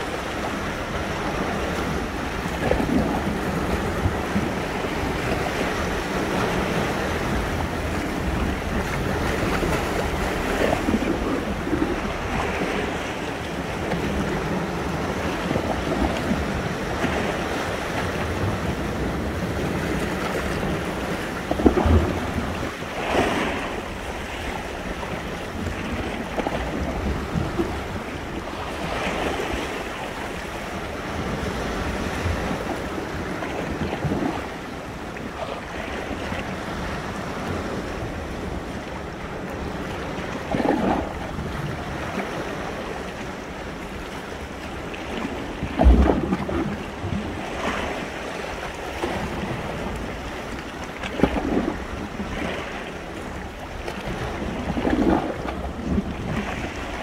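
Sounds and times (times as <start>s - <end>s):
sea waves breaking: 0.0s - 57.0s
wind buffeting the microphone: 0.0s - 57.0s.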